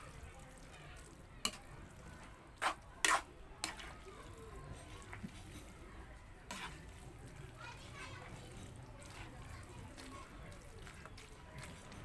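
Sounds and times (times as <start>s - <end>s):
spatula scraping and knocking a wok: 2.5s - 3.9s, 6.4s - 7.0s.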